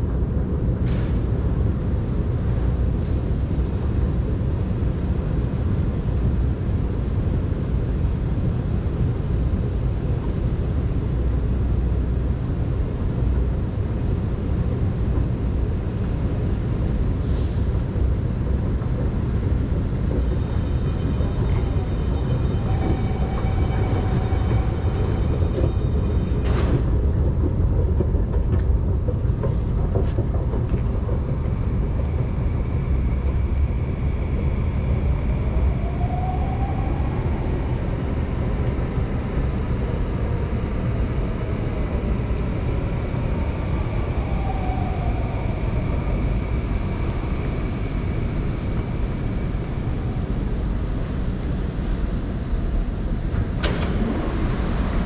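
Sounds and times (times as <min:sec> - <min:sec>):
ventilation and machinery rumble: 0:00.0 - 0:55.0
click: 0:53.3 - 0:54.1.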